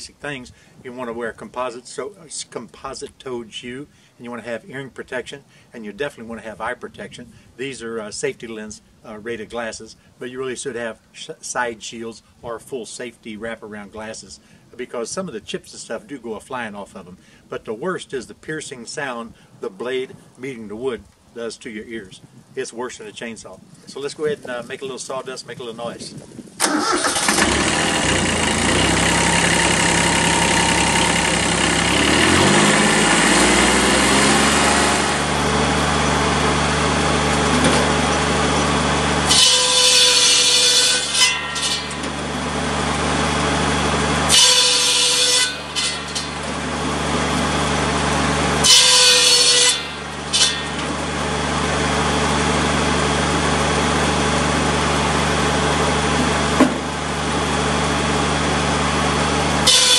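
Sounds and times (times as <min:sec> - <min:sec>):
circular saw blade screeching: 0:26.6 - 0:35.8, 0:39.2 - 0:43.0, 0:43.6 - 0:48.0, 0:48.6 - 0:51.2, 0:59.6 - 0:59.9
tractor diesel engine running: 0:26.6 - 0:59.9.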